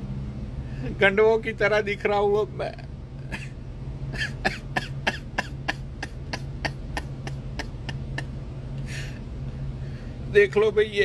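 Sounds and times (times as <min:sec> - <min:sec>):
steady low hum: 0:00.0 - 0:11.0
man laughing in breathy huffs: 0:03.2 - 0:09.4.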